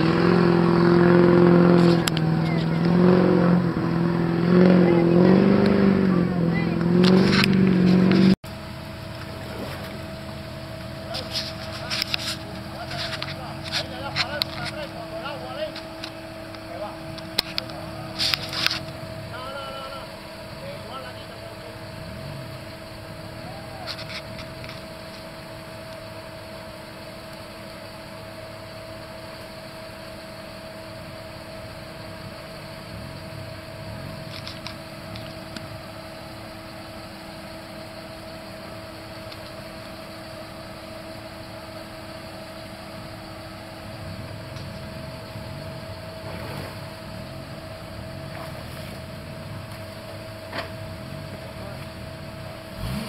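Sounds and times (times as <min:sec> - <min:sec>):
engine idling: 0:00.0 - 0:53.0.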